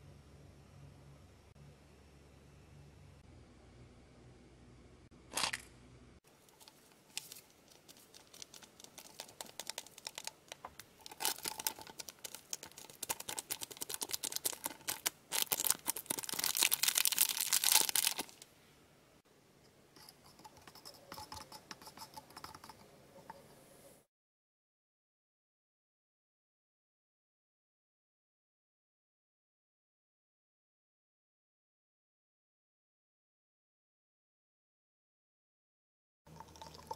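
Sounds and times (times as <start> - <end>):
candy powder pouring into flask: 6.4 - 18.5, 36.3 - 36.9
plastic sachet crinkling: 6.4 - 18.5.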